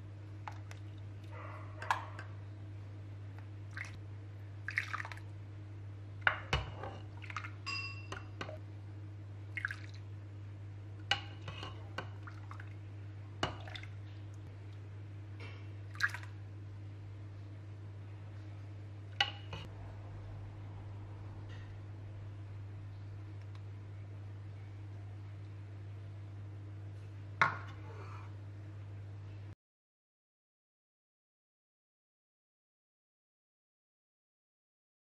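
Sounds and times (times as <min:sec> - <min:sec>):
faint low hum: 0:00.0 - 0:29.6
liquid splashing and dripping: 0:03.7 - 0:04.0, 0:04.6 - 0:05.3, 0:09.5 - 0:10.1, 0:11.1 - 0:12.8, 0:13.4 - 0:14.8, 0:15.9 - 0:16.4
ladle clinking: 0:06.3 - 0:08.6.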